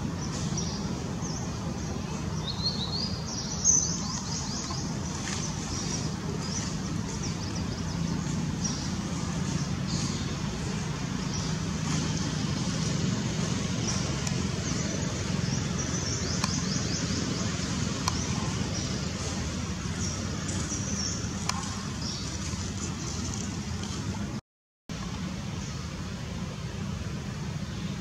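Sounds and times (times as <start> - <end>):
outdoor background rumble: 0.0 - 28.0.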